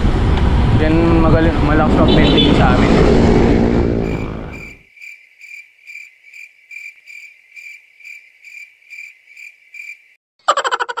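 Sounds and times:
wind and road noise: 0:00.0 - 0:04.9
cricket chirping: 0:04.1 - 0:10.2.

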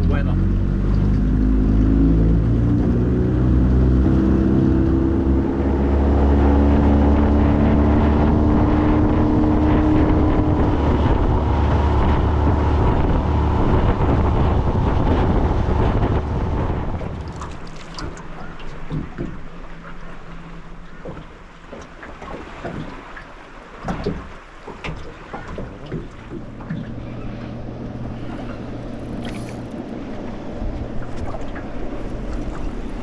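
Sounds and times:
wind on microphone: 0:00.0 - 0:19.5
outboard motor running: 0:00.0 - 0:33.0
water rushing: 0:00.0 - 0:33.0.

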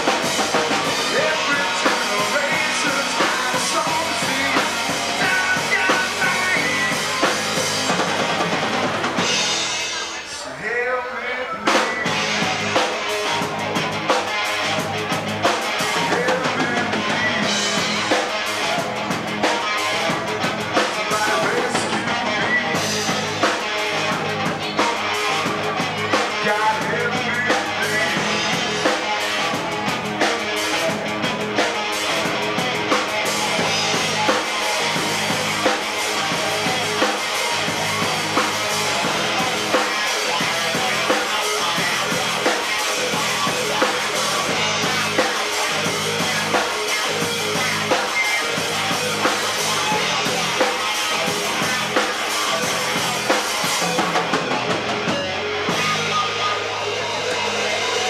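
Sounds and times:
drum kit beat: 0:00.0 - 0:10.3, 0:11.7 - 0:58.0
electric guitar: 0:00.0 - 0:58.0.

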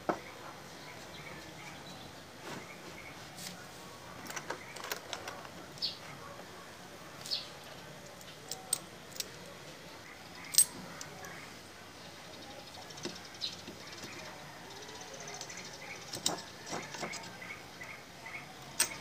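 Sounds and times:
metal parts clinking: 0:10.4 - 0:10.8, 0:18.7 - 0:19.0.

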